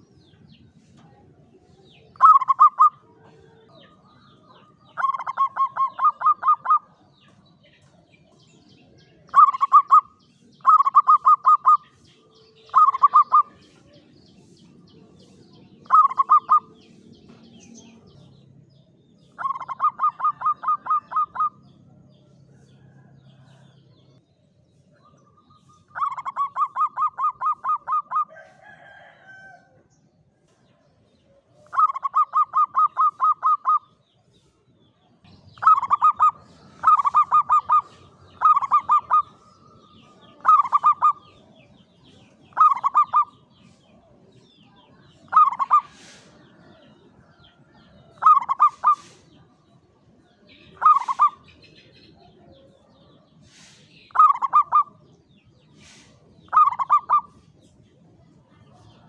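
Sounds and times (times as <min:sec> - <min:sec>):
dove cooing: 0:02.2 - 0:06.9, 0:09.3 - 0:11.8, 0:12.7 - 0:13.6, 0:15.8 - 0:16.7, 0:19.4 - 0:21.6, 0:25.9 - 0:28.4, 0:31.6 - 0:33.9, 0:35.6 - 0:41.5, 0:42.5 - 0:43.4, 0:45.2 - 0:46.8, 0:48.1 - 0:49.3, 0:50.7 - 0:51.4, 0:53.6 - 0:55.0, 0:55.8 - 0:57.3.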